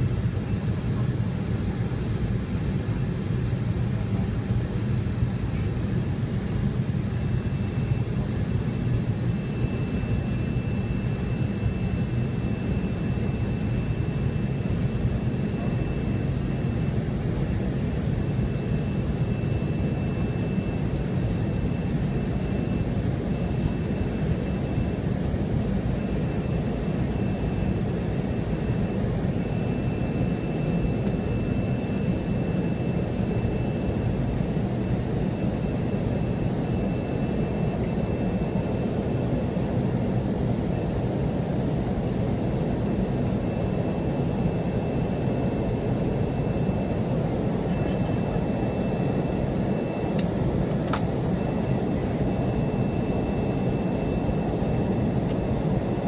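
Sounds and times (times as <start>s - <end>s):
jet cabin roar: 0.0s - 56.0s
thin high whine: 42.6s - 56.0s.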